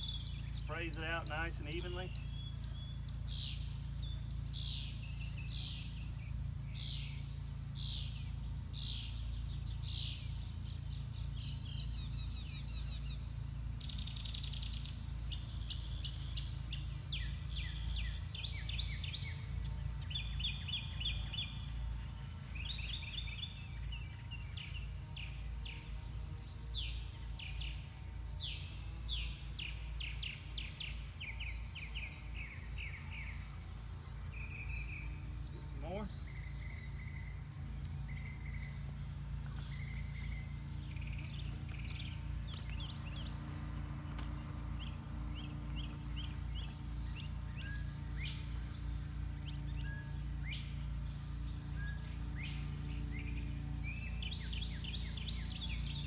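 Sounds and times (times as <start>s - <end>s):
songbirds chirping and trilling: 0.0s - 56.0s
steady low rumble: 0.0s - 56.0s.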